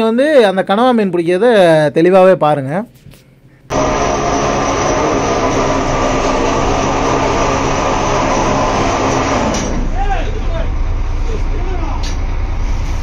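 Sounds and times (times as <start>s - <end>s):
boat diesel engine running: 3.7s - 12.9s.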